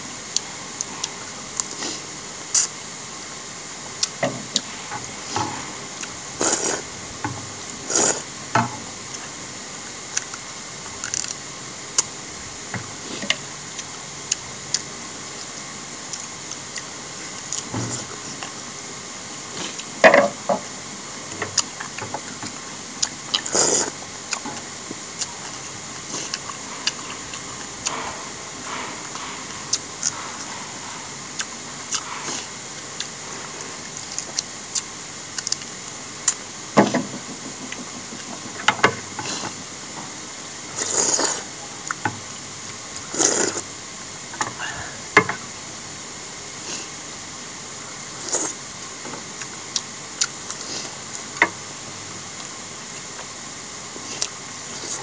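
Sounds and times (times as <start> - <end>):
person chewing: 4.0 - 6.9, 7.8 - 8.3, 10.1 - 10.4, 11.0 - 11.4, 13.0 - 15.5, 19.5 - 20.0, 21.3 - 36.4, 40.8 - 42.0, 43.0 - 43.6, 49.4 - 51.2, 54.0 - 55.0
slurping noodles: 4.0 - 7.0, 7.7 - 8.3, 23.1 - 24.4, 40.8 - 42.0, 43.0 - 43.7, 48.1 - 48.6
mouth smacks while chewing: 34.0 - 35.7.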